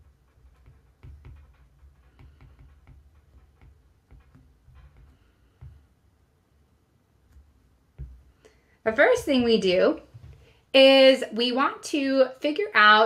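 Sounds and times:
stylus tapping on tablet screen: 0.0 - 6.4, 7.1 - 10.6.

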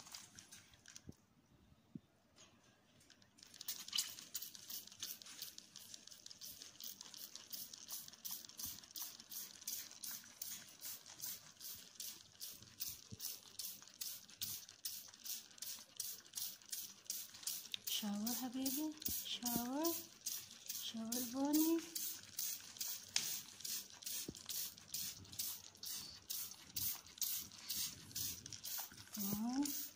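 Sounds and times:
spray bottle hissing: 7.1 - 29.9.

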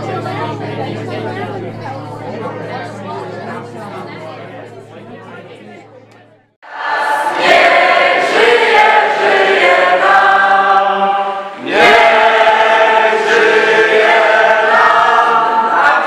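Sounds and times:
group singing unaccompanied: 6.6 - 16.0.

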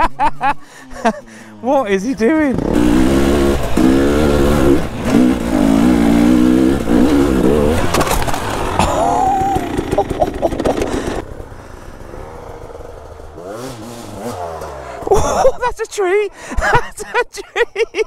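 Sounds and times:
distant engine: 0.0 - 16.7
dirt bike engine revving: 2.2 - 15.7.

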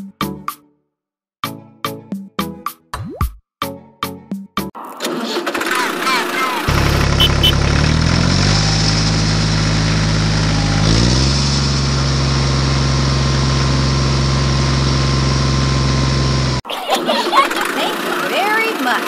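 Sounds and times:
tractor engine revving: 4.8 - 19.0.

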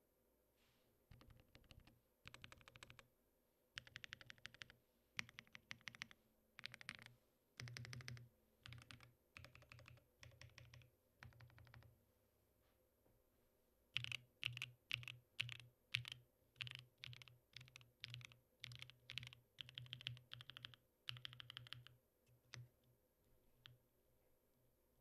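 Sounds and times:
mechanical keyboard clacking: 1.1 - 3.0, 3.8 - 11.8, 14.0 - 21.9.

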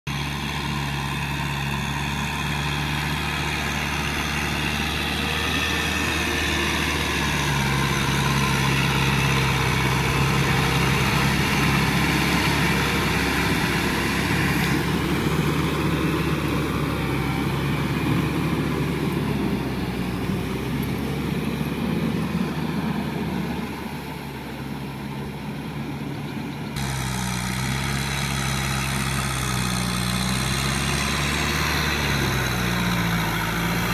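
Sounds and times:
tractor diesel engine running: 0.1 - 33.9.

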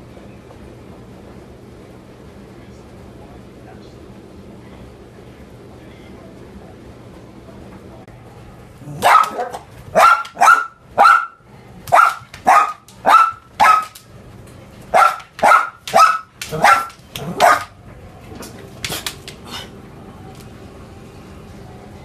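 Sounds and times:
dog barking high-pitched: 8.9 - 14.0, 14.9 - 17.7.

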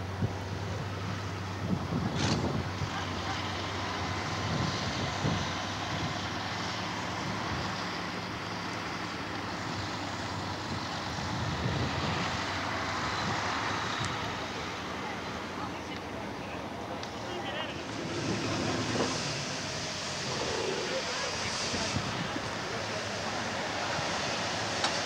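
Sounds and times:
distant truck engine running: 0.0 - 25.0.

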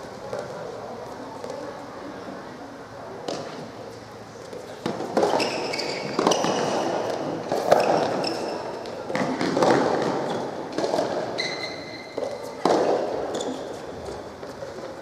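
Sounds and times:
racket hitting tennis ball: 4.8 - 11.4, 12.1 - 13.8.

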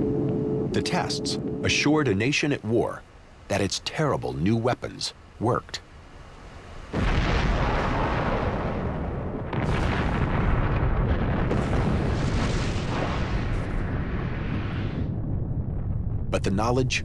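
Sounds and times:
bomb blast rumbling roar: 6.9 - 16.5.

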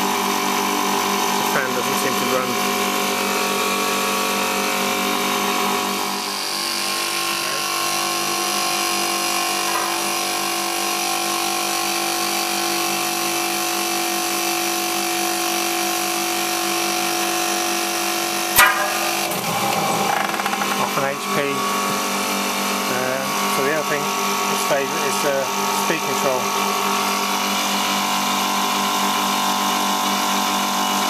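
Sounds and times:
compressor humming: 16.8 - 28.5.

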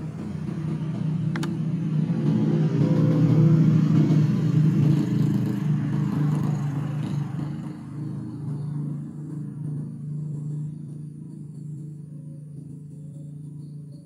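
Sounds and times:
vehicle passing: 0.0 - 11.1
steady low hum: 0.0 - 14.0.

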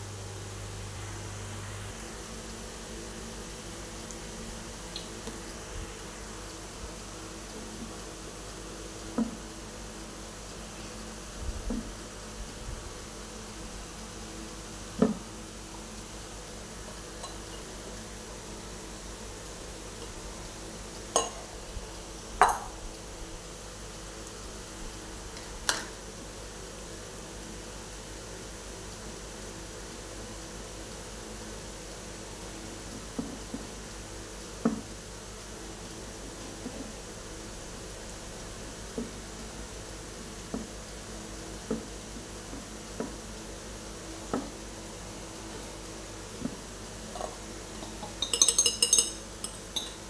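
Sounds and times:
steady hiss: 0.0 - 50.0
bowls and utensils knocking: 21.2 - 21.4, 22.4 - 22.8, 47.2 - 50.0.

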